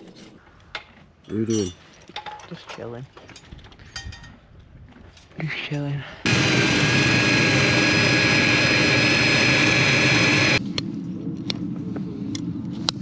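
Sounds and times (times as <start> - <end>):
mechanical running noise with whine: 6.3 - 10.6
low hum: 6.3 - 11.3.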